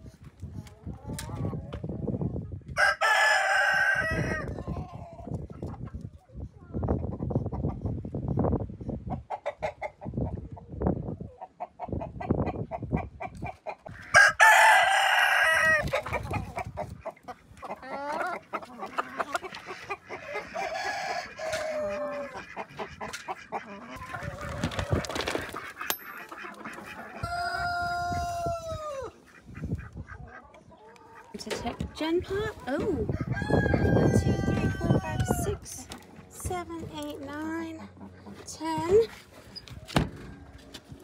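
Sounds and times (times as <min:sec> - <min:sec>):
chickens clucking: 0:00.0 - 0:41.0
rooster crowing: 0:02.8 - 0:04.5, 0:14.1 - 0:15.8, 0:20.6 - 0:22.3, 0:27.2 - 0:29.1, 0:33.1 - 0:35.5.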